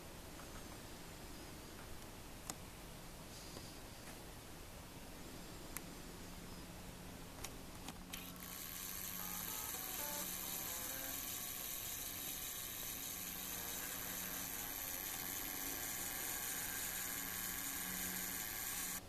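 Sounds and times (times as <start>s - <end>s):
camera zoom motor whirring: 8.0s - 19.0s.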